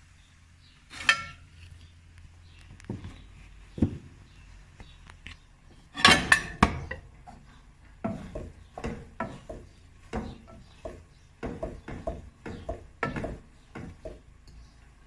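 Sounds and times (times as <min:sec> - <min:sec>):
wooden spoon knocking pot: 0:06.0 - 0:14.5.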